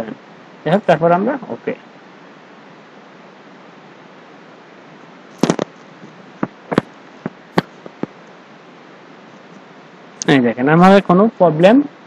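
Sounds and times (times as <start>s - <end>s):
steady hiss: 0.0s - 12.0s
sharp clicks and taps: 6.4s - 8.2s.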